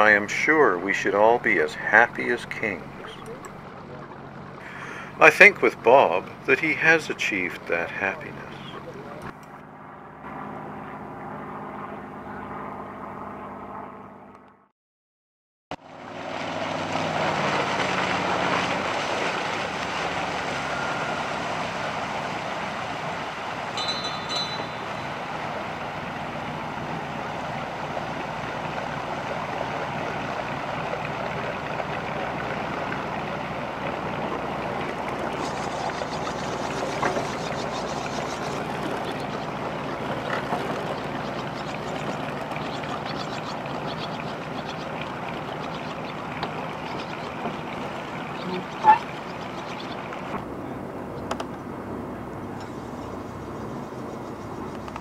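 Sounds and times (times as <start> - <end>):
motorboat engine: 0.0 - 14.7, 15.8 - 55.0
rush of wake and spray: 15.8 - 50.5.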